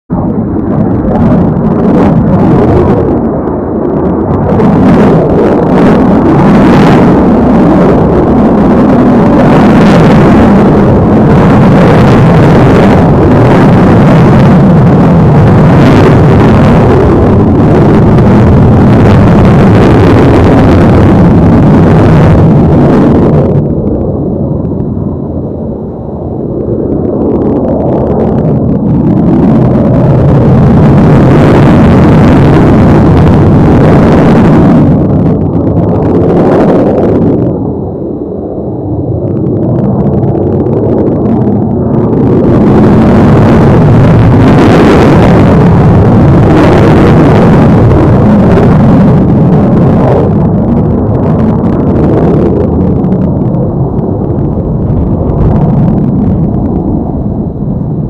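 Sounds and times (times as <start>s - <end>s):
loud jet engine noise overhead: 0.1s - 58.0s.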